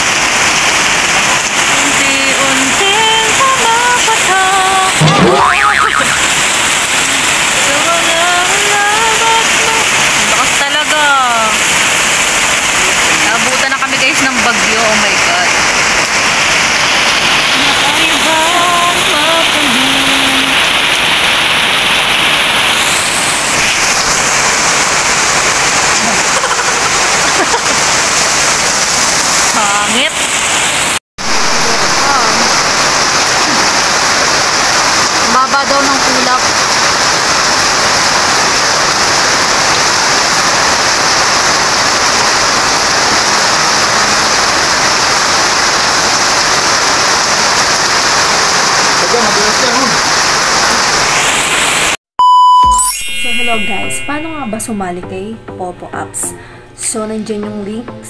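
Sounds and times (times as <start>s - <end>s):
heavy rain pouring: 0.0s - 52.0s.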